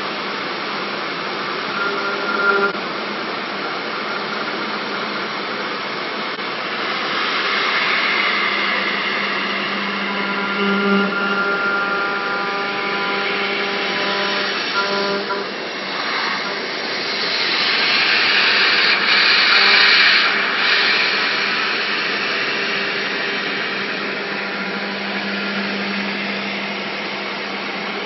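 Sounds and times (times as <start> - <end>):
cnc machine milling hiss: 0.0 - 28.0
machine whining tones: 1.5 - 3.0, 6.3 - 28.0.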